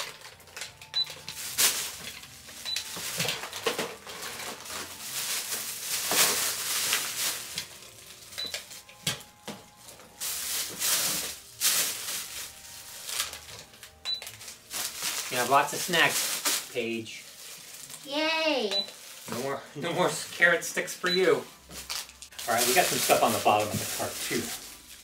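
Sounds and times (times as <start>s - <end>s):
plastic bag rustling: 0.0s - 20.6s, 21.5s - 25.0s
toy scanner beeps: 18.7s - 19.0s.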